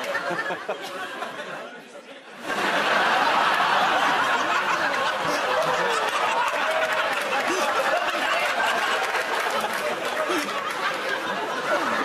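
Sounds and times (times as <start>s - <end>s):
audience laughing: 0.0s - 12.0s.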